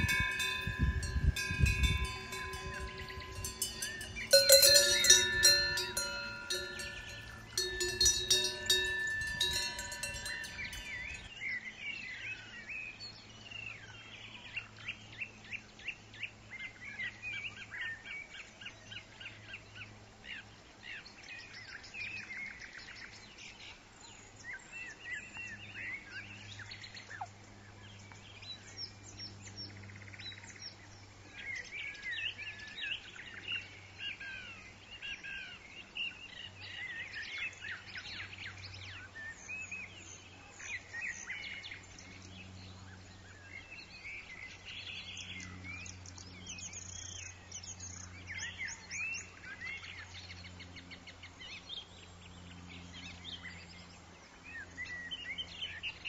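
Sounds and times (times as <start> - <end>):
metal cowbells jangling: 0.0 - 11.3
small birds chirping: 0.0 - 11.3.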